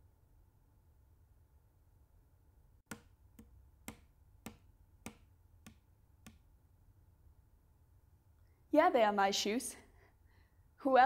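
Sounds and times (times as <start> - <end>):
faint low room hum: 0.0 - 11.0
sharp taps: 2.9 - 6.5.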